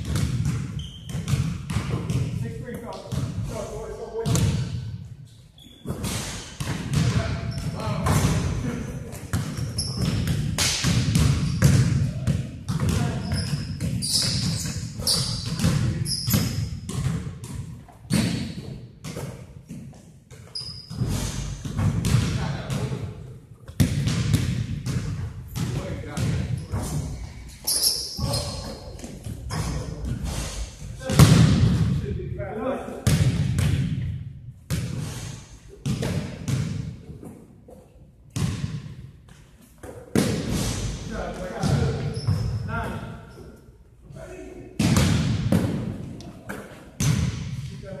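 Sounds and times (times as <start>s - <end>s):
basketball bouncing on gym floor: 0.0s - 3.6s, 4.2s - 4.9s, 5.8s - 27.3s, 31.0s - 32.0s, 33.0s - 35.0s, 35.8s - 37.4s, 38.3s - 40.5s, 41.4s - 43.0s, 44.8s - 47.7s
sneaker squeaks: 0.7s - 1.5s, 5.6s - 6.7s, 7.3s - 8.0s, 9.5s - 10.3s, 11.4s - 11.8s, 12.9s - 16.9s, 20.4s - 21.7s, 26.5s - 30.4s, 41.6s - 43.4s.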